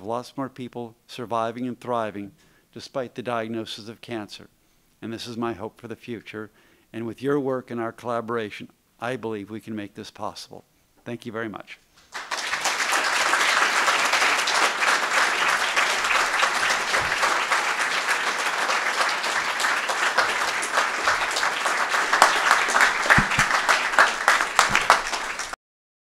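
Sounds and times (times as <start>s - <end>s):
audience applauding: 12.1s - 25.6s.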